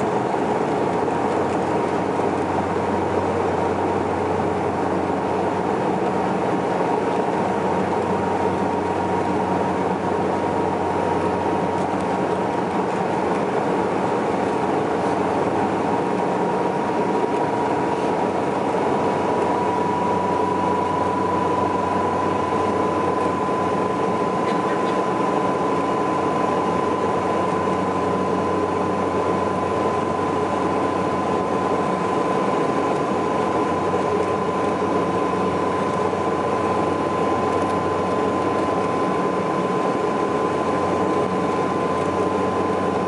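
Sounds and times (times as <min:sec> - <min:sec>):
turboprop engines droning: 0:00.0 - 0:43.0.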